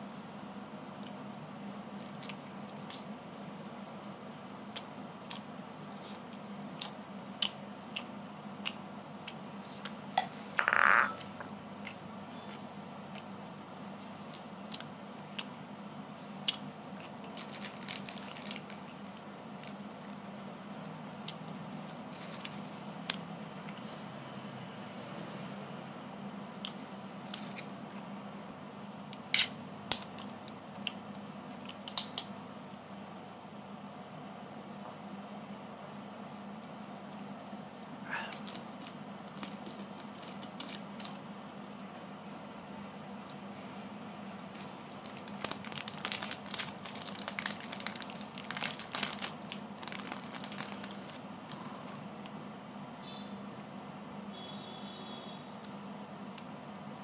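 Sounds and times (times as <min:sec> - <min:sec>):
plastic wrapper crinkling: 0:16.4 - 0:20.0, 0:22.1 - 0:22.9, 0:26.8 - 0:27.7, 0:44.3 - 0:52.1.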